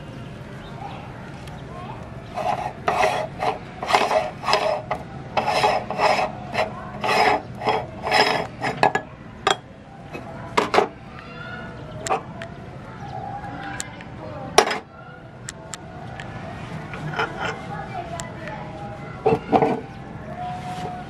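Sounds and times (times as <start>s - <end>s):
metal ring rasping on threads: 2.3s - 9.6s.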